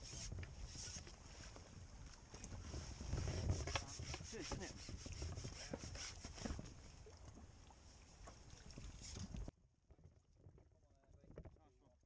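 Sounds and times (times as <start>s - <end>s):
pole rubbing and scraping: 0.0s - 1.6s, 2.5s - 6.7s
low wind rumble on microphone: 0.0s - 6.9s.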